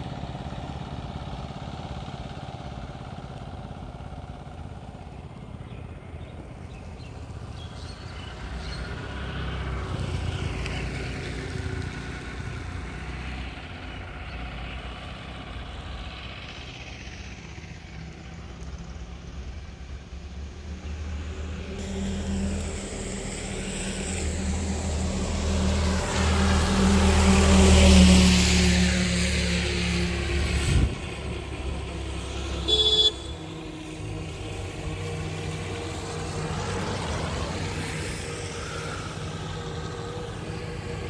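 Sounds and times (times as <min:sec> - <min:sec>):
vehicle engines rumbling: 0:00.0 - 0:41.0
tyre hiss on wet road: 0:20.2 - 0:41.0.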